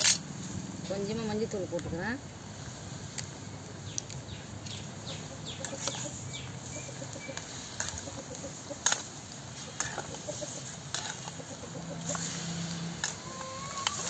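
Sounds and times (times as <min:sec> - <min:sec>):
chickens clucking and chirping: 0:03.7 - 0:14.0.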